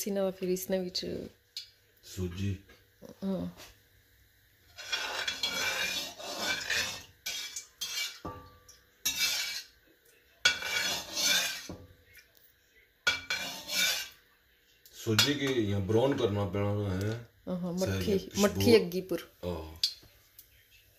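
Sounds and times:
metal spoon scraping steel pan: 4.7 - 9.8, 10.4 - 11.8, 13.1 - 14.2.

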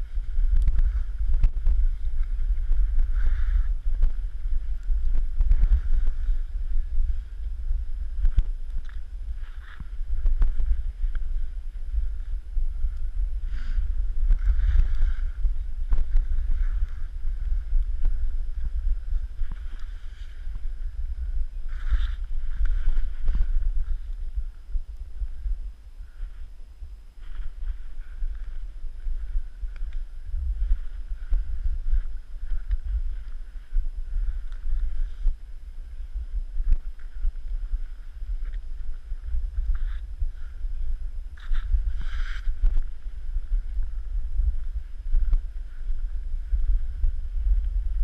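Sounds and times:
skis scraping over snow: 0.0 - 7.5, 8.2 - 12.9, 13.5 - 17.7, 18.6 - 24.6, 41.4 - 44.1
wind buffeting microphone: 0.0 - 48.0
skis sliding hiss: 13.4 - 17.7, 21.6 - 24.6, 41.4 - 43.7.

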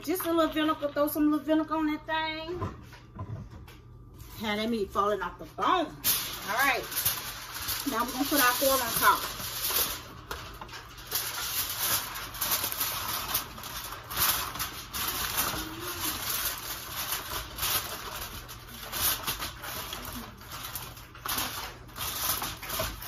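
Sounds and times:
aluminium foil crinkling: 0.0 - 2.0, 4.2 - 23.0.

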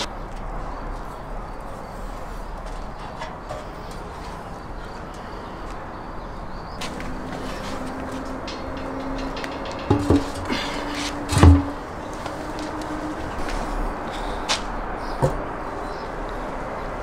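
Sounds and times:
steady outdoor hiss: 0.0 - 17.0
metal skewers clinking: 6.9 - 12.0.

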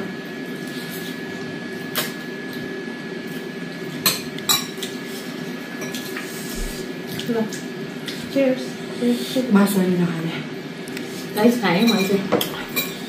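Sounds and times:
utensils clinking on bowls: 11.7 - 13.0.

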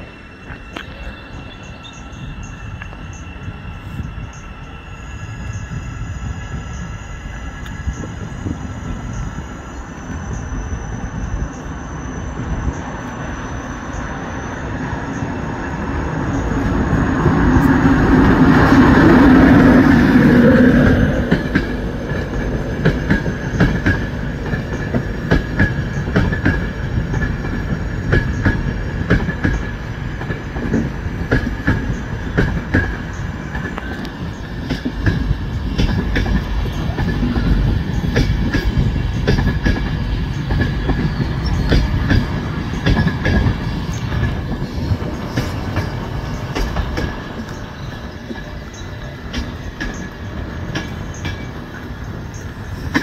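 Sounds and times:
electric locomotive hum: 0.0 - 53.0
high squeal: 0.0 - 53.0
train coaches rumbling: 0.0 - 53.0
wheels clicking over rail joints: 16.4 - 53.0.

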